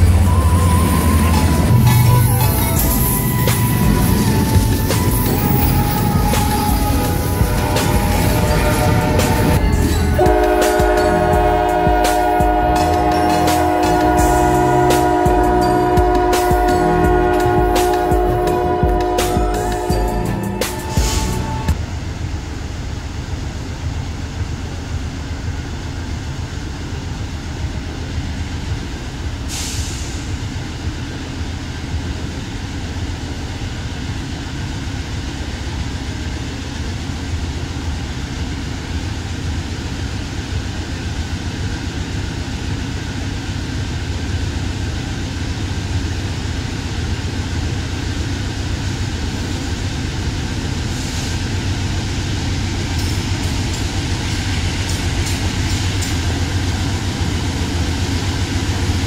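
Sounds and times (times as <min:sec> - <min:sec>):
diesel locomotive engine rumble: 0:00.0 - 0:59.0
short hiss: 0:29.5 - 0:30.4.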